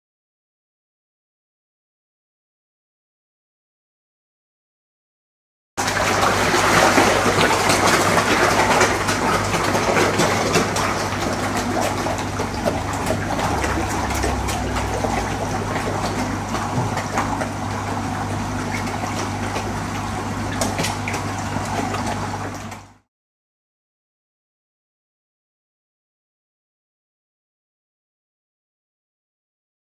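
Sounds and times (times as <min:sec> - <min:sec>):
water churning and splashing: 0:05.8 - 0:23.0
steady low hum: 0:05.9 - 0:22.7.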